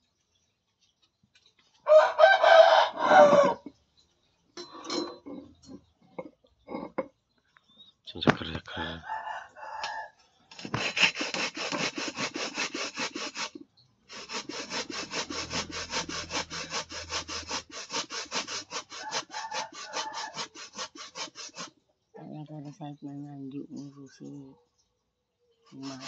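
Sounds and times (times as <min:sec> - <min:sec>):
coconut grated on metal grater: 0:10.6 - 0:21.7, 0:25.7 - 0:26.0.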